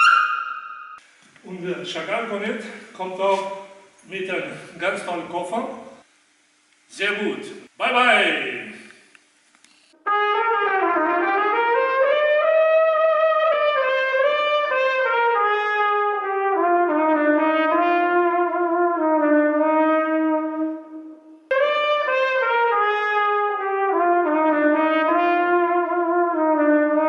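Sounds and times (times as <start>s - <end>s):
cornet playing smooth melody: 10.0s - 27.0s.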